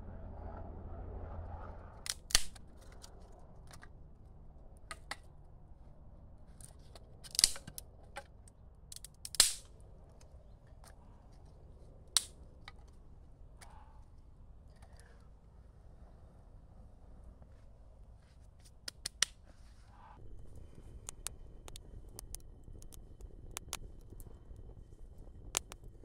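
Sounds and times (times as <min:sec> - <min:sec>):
dry wood cracking and snapping: 0:02.1 - 0:04.0, 0:06.5 - 0:11.5, 0:12.1 - 0:13.0, 0:20.5 - 0:24.3, 0:25.5 - 0:25.9.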